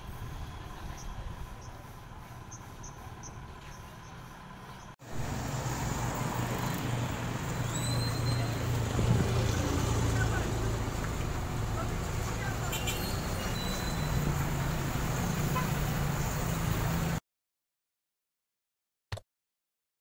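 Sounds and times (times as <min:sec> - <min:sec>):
low traffic rumble: 0:00.0 - 0:17.2
vehicle engines running: 0:00.0 - 0:17.2
high-pitched squeal: 0:06.3 - 0:09.6, 0:12.9 - 0:14.5.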